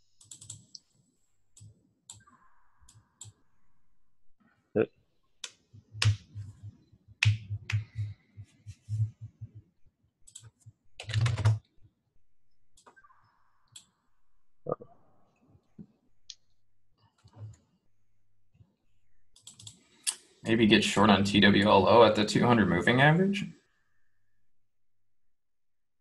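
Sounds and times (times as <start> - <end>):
computer keyboard typing: 0.2 - 0.8, 5.4 - 8.2, 10.2 - 11.6, 19.4 - 19.8.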